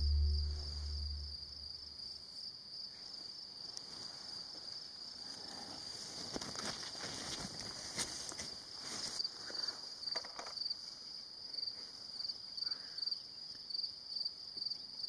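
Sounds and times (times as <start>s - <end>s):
low rumble: 0.0s - 1.8s
faint clicks and rustles: 5.9s - 10.6s.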